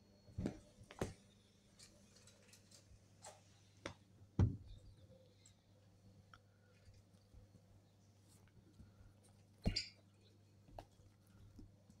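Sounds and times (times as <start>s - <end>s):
kittens play-fighting on a sofa: 0.1s - 1.4s, 6.4s - 12.0s.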